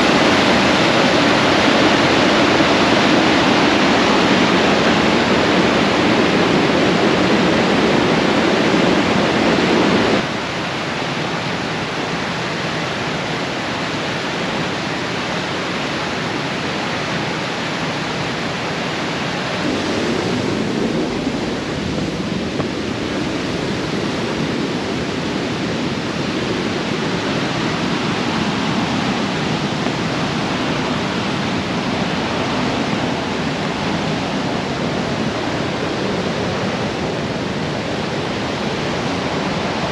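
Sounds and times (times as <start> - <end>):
river rapids roaring: 0.0 - 39.9.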